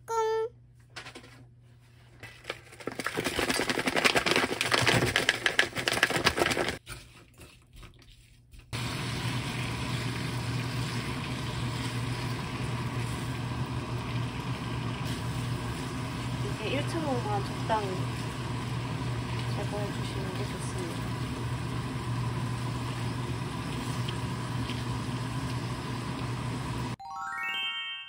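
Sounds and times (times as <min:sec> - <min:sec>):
food sizzling in a pan: 0:08.8 - 0:27.0.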